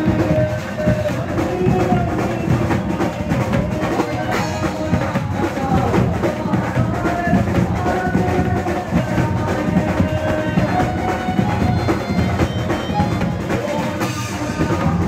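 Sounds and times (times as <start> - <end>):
drums and percussion dance beat: 0.0 - 15.0
man singing into microphone: 0.0 - 15.0.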